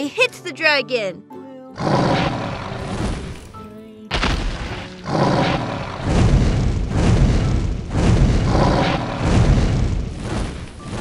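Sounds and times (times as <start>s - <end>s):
booming fire blasts: 4.1s - 11.0s.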